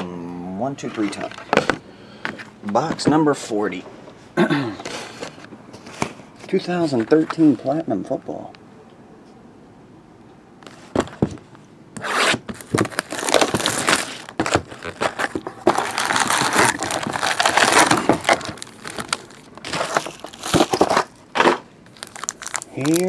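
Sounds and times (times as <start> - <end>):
cardboard and foil wrappers crinkling: 12.5 - 23.0.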